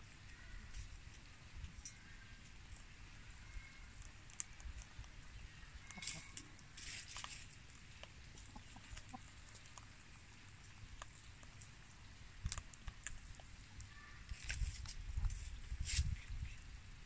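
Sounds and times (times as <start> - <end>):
chickens clucking: 4.5 - 10.0.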